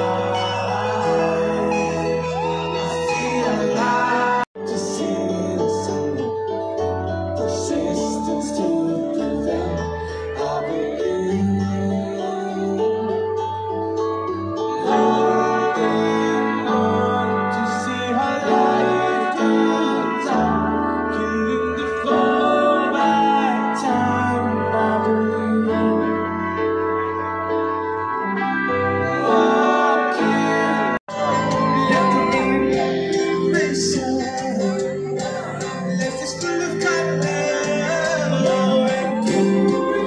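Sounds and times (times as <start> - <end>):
bass line: 0.0 - 40.0
keyboard and guitar playing: 0.0 - 40.0
person singing: 0.0 - 40.0
steady bass line: 30.8 - 40.0.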